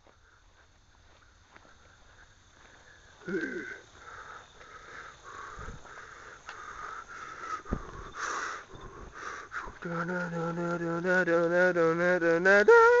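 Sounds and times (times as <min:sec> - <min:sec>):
person making short vocal sound: 0:03.2 - 0:03.8
low thump: 0:07.6 - 0:08.1.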